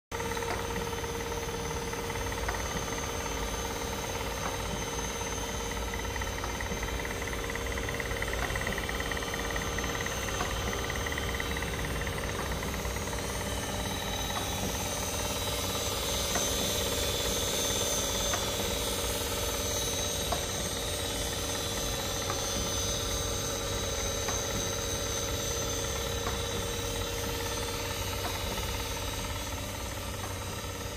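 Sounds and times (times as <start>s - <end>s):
machine motor hum and whine: 0.2s - 30.9s.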